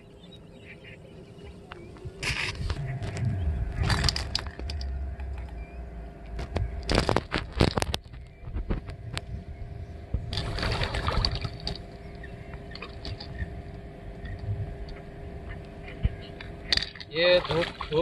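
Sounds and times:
faint steady hum: 0.0 - 18.0
water sloshing and splashing: 10.1 - 15.0, 15.8 - 18.0.

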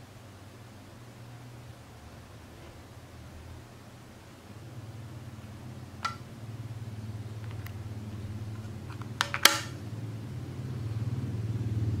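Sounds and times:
steady low hum: 0.0 - 12.0
remote set down on glass: 9.2 - 9.8.

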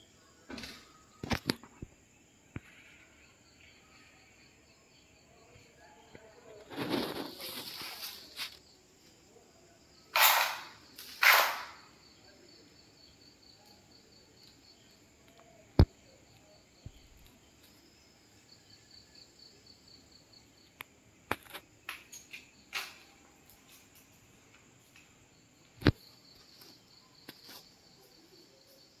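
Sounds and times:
crickets chirping: 0.0 - 29.0
sharp click: 10.1 - 11.8.

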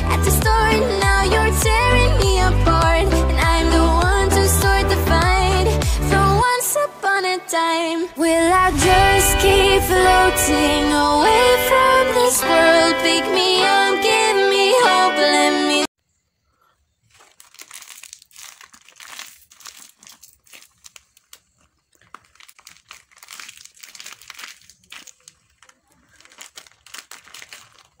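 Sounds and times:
plastic wrapper crinkling: 17.0 - 28.0.

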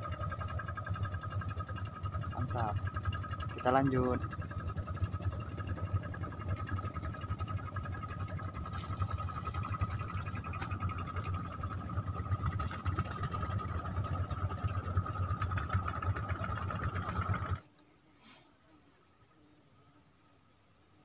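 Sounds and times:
fishing reel whirring: 0.0 - 13.7
brief hiss: 18.1 - 19.1.

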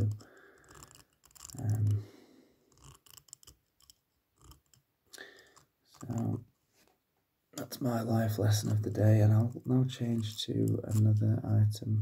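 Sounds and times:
small clicks of objects handled: 0.0 - 2.0, 2.7 - 6.3
light scratching: 0.0 - 4.8, 5.4 - 7.0, 7.6 - 11.6.

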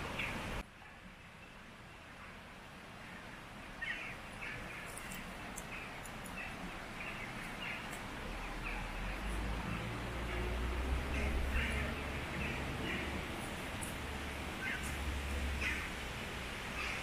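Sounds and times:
stream flowing: 0.0 - 17.0
bird calling: 3.1 - 16.0, 16.6 - 17.0.

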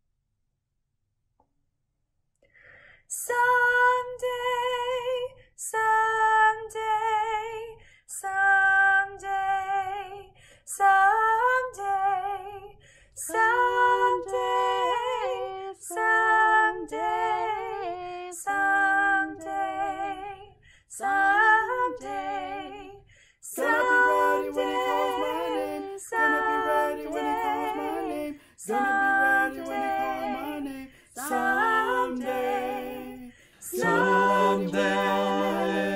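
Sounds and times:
woman singing: 3.1 - 35.9
second woman singing harmony: 13.2 - 35.9.

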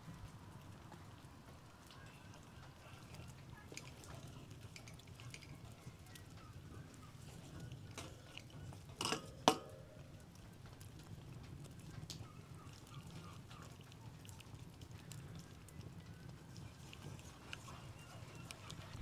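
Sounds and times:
fire crackling: 0.0 - 19.0
wooden spoon stirring sauce: 0.2 - 19.0
spoon scraping pan: 7.3 - 9.8
spoon knocking on pan: 9.0 - 9.8.

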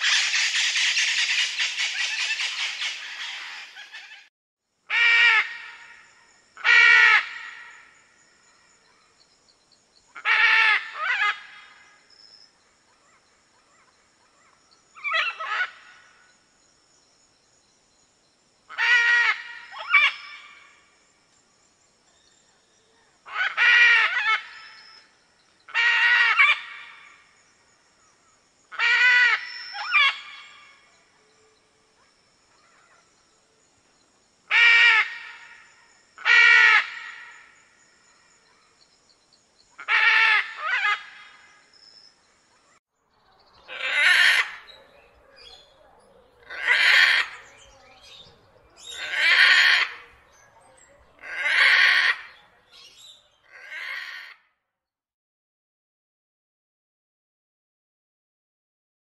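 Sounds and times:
macaw squawking: 0.0 - 4.3, 43.7 - 50.2, 51.2 - 54.4.

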